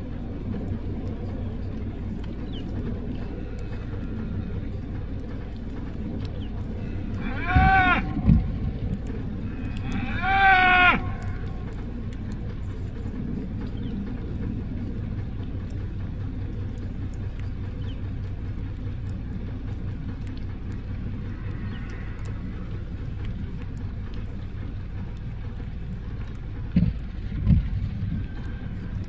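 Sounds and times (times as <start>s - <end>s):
vehicle engine idling: 0.0s - 29.0s
loud low thumps: 7.4s - 9.4s.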